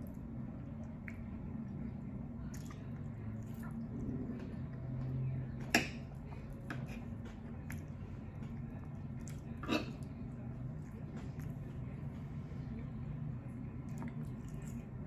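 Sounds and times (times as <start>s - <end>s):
chewing and mouth clicks: 0.0s - 1.4s, 2.4s - 4.9s, 5.6s - 10.1s, 10.8s - 11.7s, 13.8s - 15.0s.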